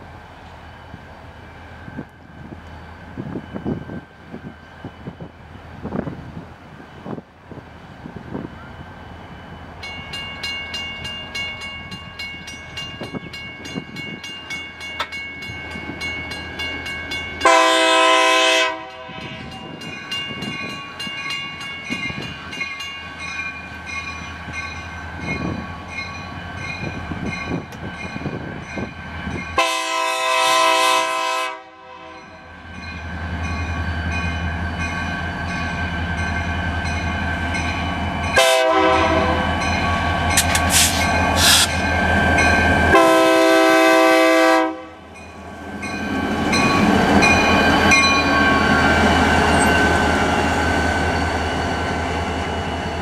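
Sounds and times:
locomotive bell ringing: 8.3s - 29.7s, 32.0s - 43.8s, 44.7s - 53.0s
locomotive horn blasts: 17.4s - 19.6s, 29.6s - 32.5s, 38.4s - 39.6s, 42.9s - 45.1s.

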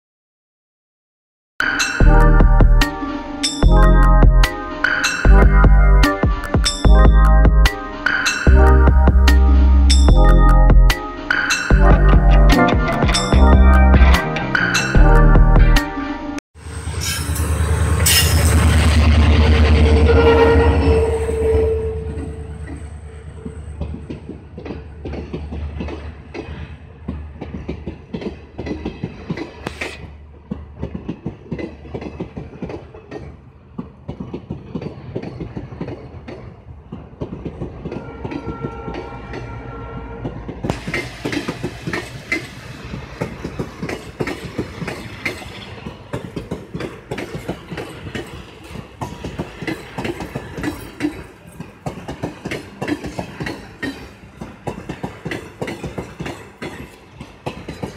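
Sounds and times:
train rumble: 2.0s - 57.9s
train wheels clattering over rail joints: 22.2s - 39.5s, 40.3s - 57.9s.

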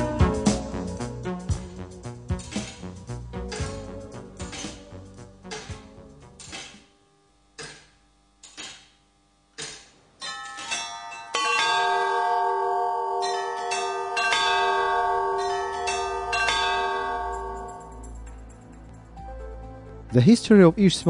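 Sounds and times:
clock mechanism ticking: 2.3s - 6.9s, 7.6s - 12.1s
clock bells striking: 9.6s - 18.4s.

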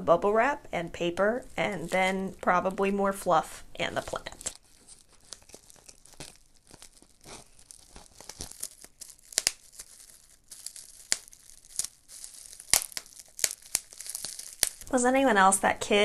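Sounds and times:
bubble wrap popping: 1.2s - 15.5s
plastic packaging crinkling: 3.9s - 15.0s.

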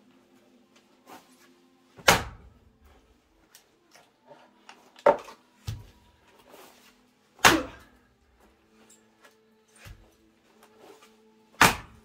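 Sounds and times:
axe chopping wood: 2.0s - 2.5s, 7.4s - 8.0s, 11.6s - 12.0s.

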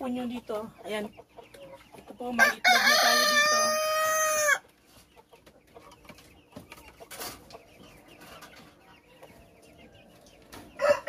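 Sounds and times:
hens clucking: 0.0s - 11.0s
rooster crowing: 2.4s - 4.6s, 10.8s - 11.0s.

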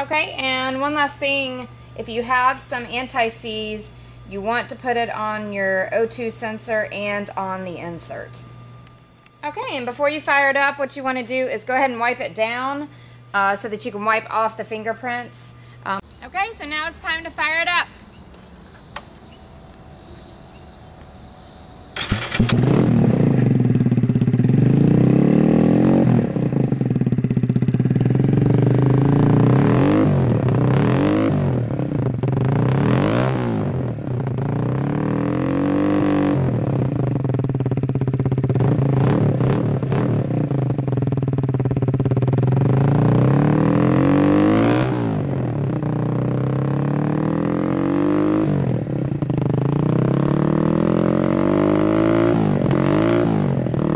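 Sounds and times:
motorcycle engine revving and idling: 18.6s - 53.9s.

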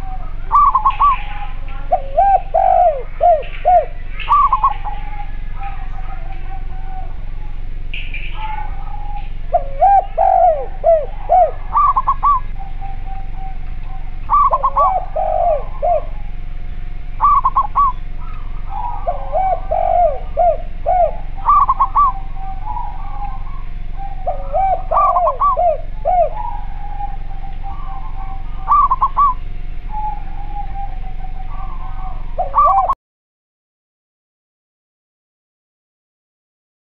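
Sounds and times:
doves cooing: 0.0s - 33.0s.

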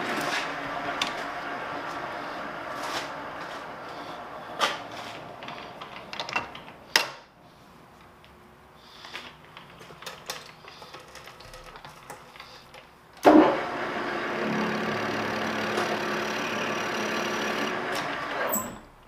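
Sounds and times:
lathe running with gear hum: 13.3s - 18.8s
lathe controls clicking: 14.2s - 18.8s.

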